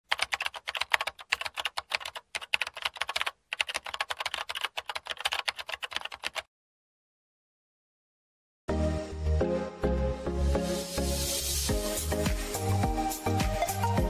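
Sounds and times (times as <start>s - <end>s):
computer keyboard typing: 0.0s - 6.5s.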